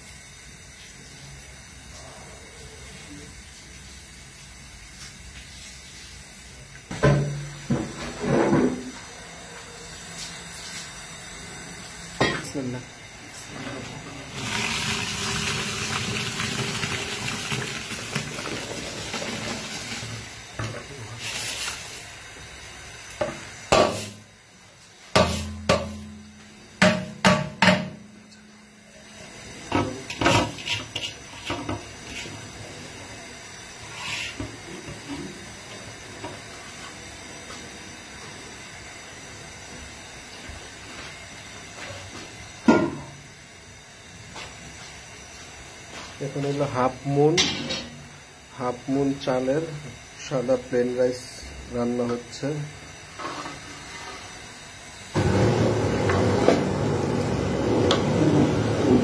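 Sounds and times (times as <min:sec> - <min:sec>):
pot boiling with a hiss: 0:00.0 - 0:59.0
metal bowl knocking against pot: 0:26.8 - 0:28.1.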